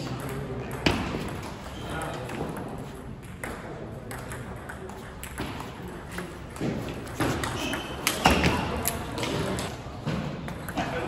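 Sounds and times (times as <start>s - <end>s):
background chatter: 0.0s - 11.0s.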